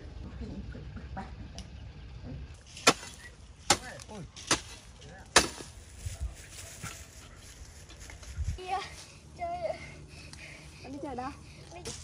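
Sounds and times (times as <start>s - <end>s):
sharp chops: 2.7s - 5.7s.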